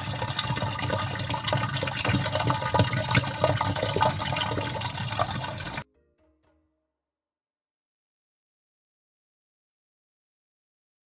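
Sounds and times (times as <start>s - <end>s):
water gushing from pipe: 0.0s - 5.8s.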